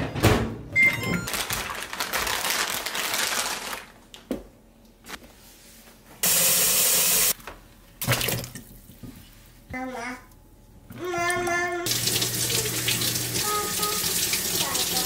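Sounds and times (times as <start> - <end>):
short electronic beep: 0.8 - 1.3
plastic bag rustling: 1.2 - 4.0
water running from tap: 6.2 - 7.4, 11.8 - 15.0.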